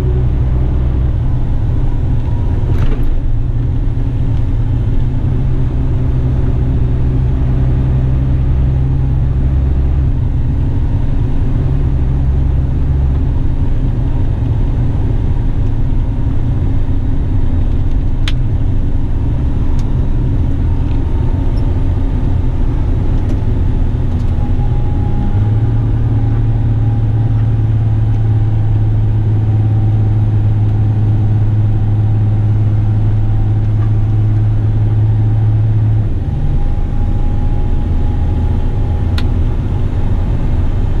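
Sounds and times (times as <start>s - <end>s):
truck diesel engine drone: 0.0s - 41.0s.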